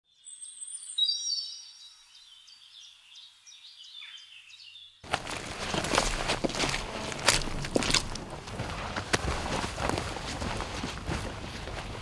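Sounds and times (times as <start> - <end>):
songbird singing: 0.0 - 8.6
footsteps on muddy ground: 5.0 - 12.0.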